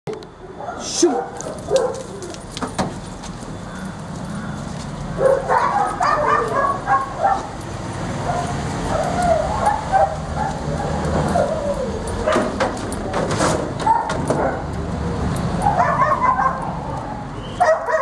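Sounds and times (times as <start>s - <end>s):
dog whining and yipping: 8.3s - 12.4s.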